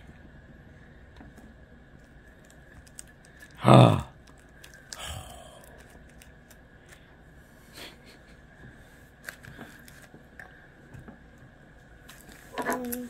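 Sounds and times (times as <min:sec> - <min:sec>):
plastic wrappers crinkling: 0:09.2 - 0:10.2.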